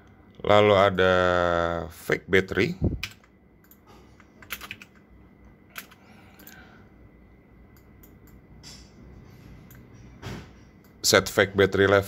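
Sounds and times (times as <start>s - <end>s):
keyboard and mouse clicks: 3.0s - 5.0s.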